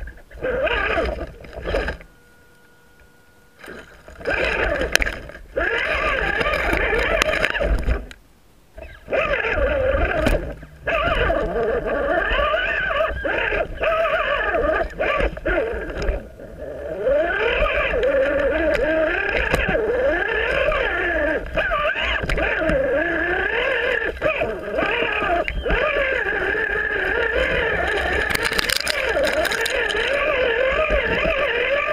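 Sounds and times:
electric motor whining: 0.0s - 8.1s, 8.8s - 31.9s
clicks and knocks on rocks: 23.8s - 31.7s.

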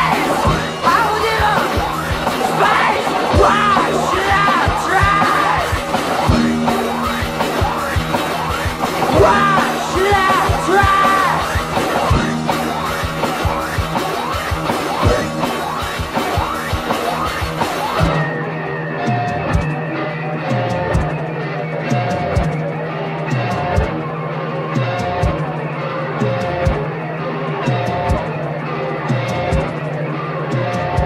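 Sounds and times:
wailing sliding tones: 0.0s - 7.0s
noisy electric guitars: 0.0s - 31.0s.

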